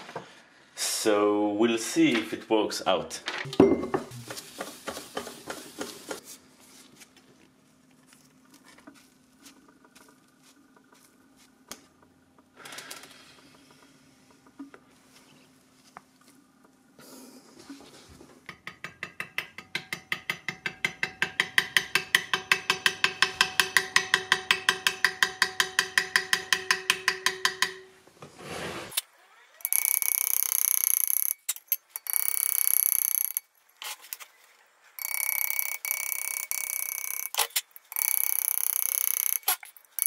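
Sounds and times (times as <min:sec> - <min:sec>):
fast mechanical ticking: 0:29.6 - 0:33.5, 0:35.0 - 0:40.0.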